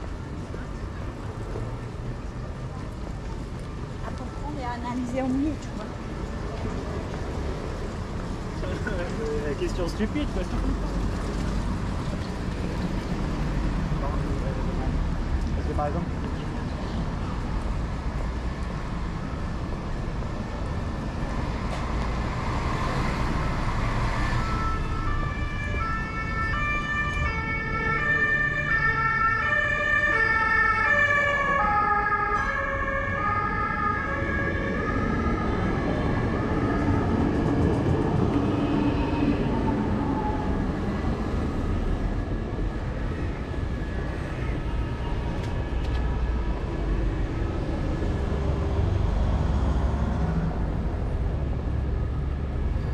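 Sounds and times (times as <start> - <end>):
road traffic: 0.0 - 52.9
two-tone siren: 24.1 - 37.0.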